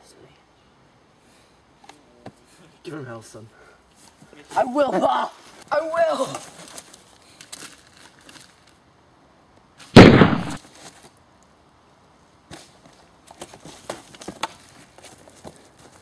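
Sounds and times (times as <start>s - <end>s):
loud gunshot: 10.0s - 10.6s.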